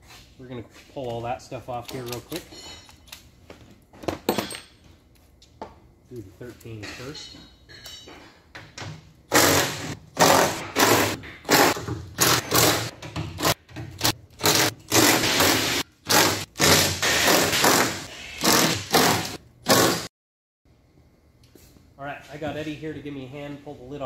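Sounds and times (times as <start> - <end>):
impact wrench hammering: 9.3 - 20.1.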